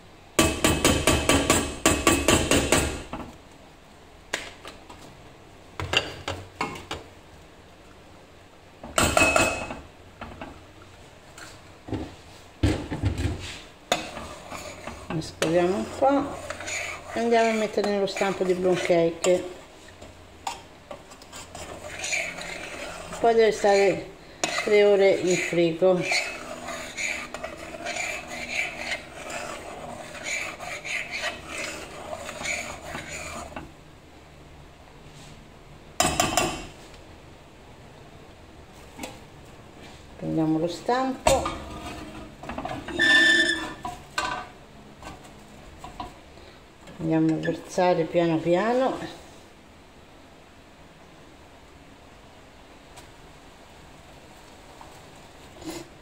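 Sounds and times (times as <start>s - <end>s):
spoon scraping metal saucepan: 13.4s - 19.6s, 20.5s - 33.7s, 41.3s - 44.5s.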